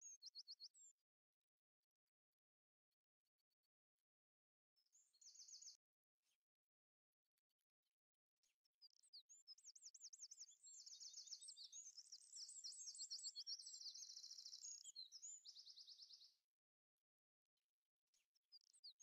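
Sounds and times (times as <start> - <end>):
songbird singing: 5.0 - 5.8, 8.9 - 16.4.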